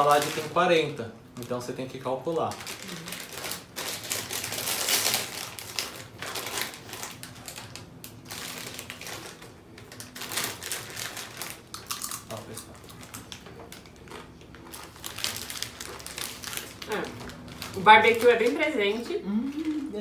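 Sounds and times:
foil snack bag crinkling: 0:00.0 - 0:20.0
chips being crunched: 0:04.0 - 0:18.6.

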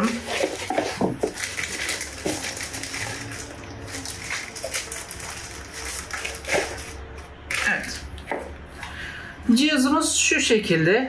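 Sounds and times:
cardboard box rustling: 0:00.0 - 0:07.0.

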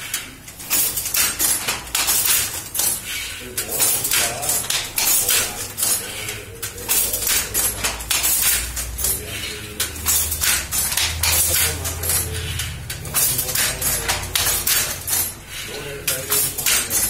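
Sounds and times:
loom mechanism rattling: 0:00.0 - 0:17.0
wooden handloom clattering: 0:00.0 - 0:17.0.

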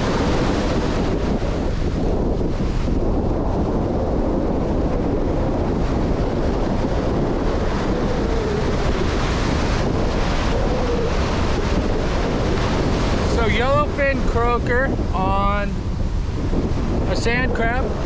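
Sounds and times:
ocean surf breaking: 0:00.0 - 0:18.0
wind rumbling on microphone: 0:00.0 - 0:18.0.

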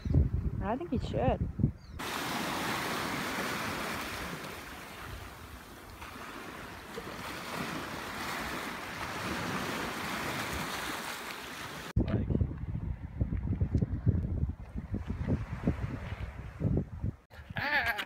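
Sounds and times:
small waves washing over rocks: 0:02.0 - 0:11.9.

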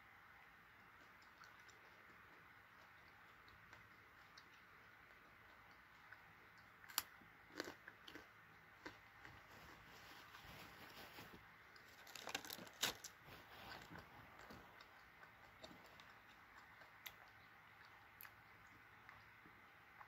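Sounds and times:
plastic crackles: 0:10.6 - 0:14.6.

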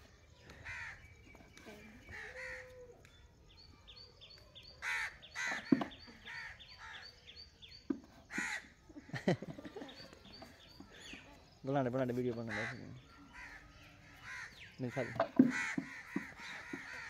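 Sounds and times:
small bird chirping: 0:00.0 - 0:17.0
crows cawing: 0:00.5 - 0:01.0, 0:02.1 - 0:02.7, 0:04.8 - 0:07.1, 0:08.3 - 0:09.3, 0:12.4 - 0:17.0.

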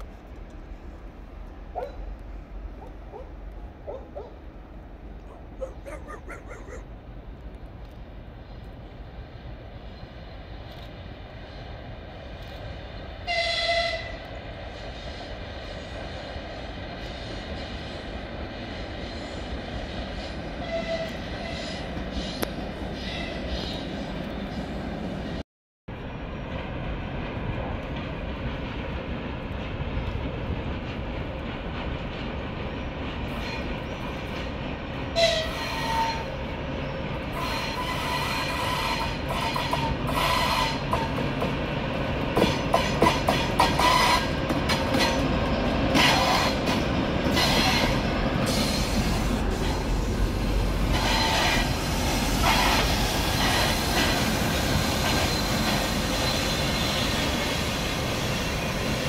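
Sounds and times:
diesel locomotive engine rumble: 0:00.0 - 0:59.0
wheel-on-rail noise: 0:25.9 - 0:59.0.

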